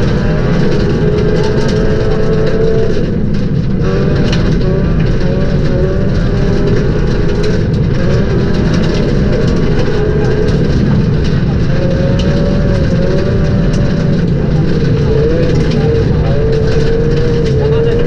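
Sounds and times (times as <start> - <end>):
car engine revving inside cabin: 0.0 - 18.0
heavy road noise: 0.0 - 18.0
scattered ticks: 0.0 - 18.0.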